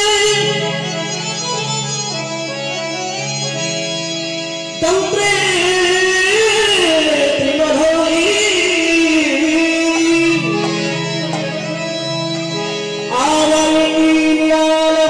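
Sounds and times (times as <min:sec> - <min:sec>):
devotional singing: 0:04.8 - 0:11.5, 0:13.1 - 0:15.0.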